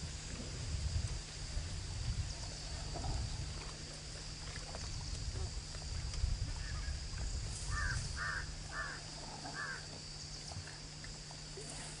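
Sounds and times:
bird calls: 7.6 - 10.6.

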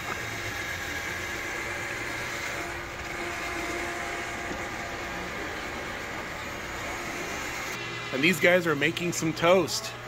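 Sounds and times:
restaurant room hum and hiss: 0.0 - 10.0.

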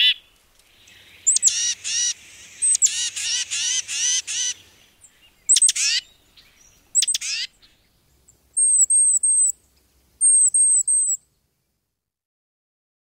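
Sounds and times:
bird harsh raspy call: 0.0 - 7.8, 8.6 - 9.6, 10.2 - 11.2.

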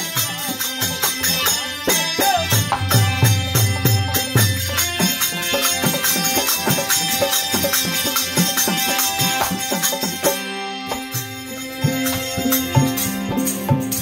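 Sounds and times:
harmonium chords: 0.0 - 14.0.

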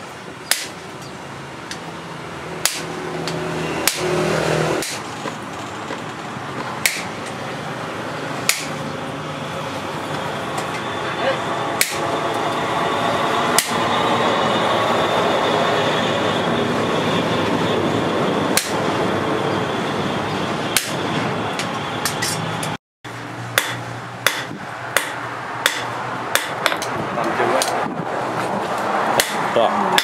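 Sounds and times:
steady rushing noise: 0.0 - 30.0
hammer striking hot steel: 0.5 - 1.9, 2.6 - 5.1, 6.6 - 7.4, 8.4 - 8.9, 10.0 - 12.7, 13.3 - 14.0, 18.5 - 18.8, 20.7 - 21.0, 21.6 - 22.8, 23.5 - 27.0, 27.6 - 27.8, 29.1 - 30.0.

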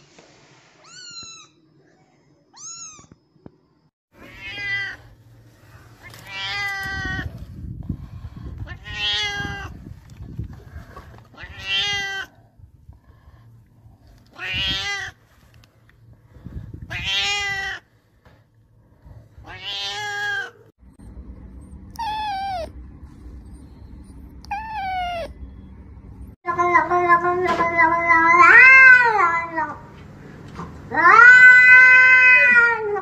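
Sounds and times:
kitten meowing: 2.6 - 3.2, 22.0 - 22.7, 24.4 - 25.4
cat meowing: 4.2 - 5.0, 8.7 - 9.8, 11.4 - 12.3, 14.3 - 15.2, 16.9 - 17.8, 19.4 - 20.6, 22.0 - 22.7, 24.5 - 25.4, 30.9 - 33.0.

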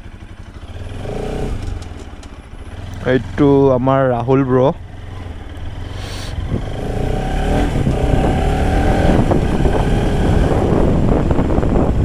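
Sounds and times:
motorcycle engine accelerating: 0.0 - 12.0.

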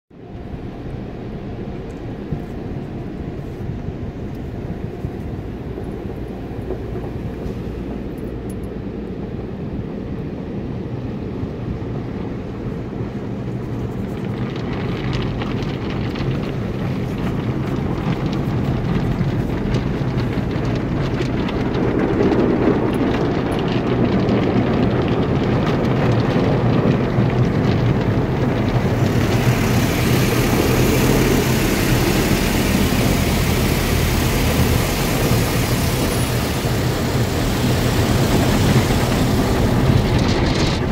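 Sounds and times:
steady low hum: 0.2 - 40.9
water spray on car: 13.3 - 40.9.

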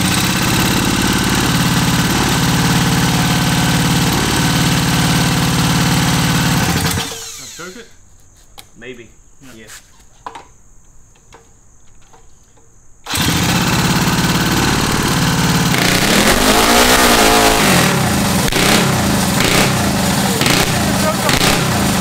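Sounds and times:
small engine starting and running: 0.0 - 7.9, 13.0 - 22.0.

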